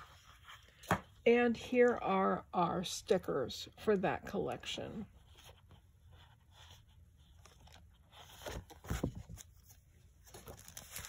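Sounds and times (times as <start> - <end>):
paper and plastic sleeve rustling: 5.2 - 11.0.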